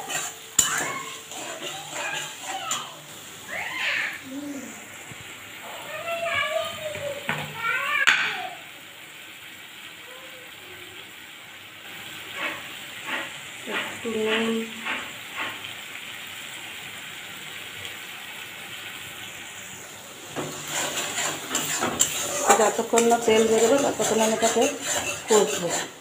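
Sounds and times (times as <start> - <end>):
metal spatula scraping wok: 0.0 - 3.3, 12.1 - 15.7, 20.3 - 26.0
paste sizzling in oil: 0.0 - 26.0.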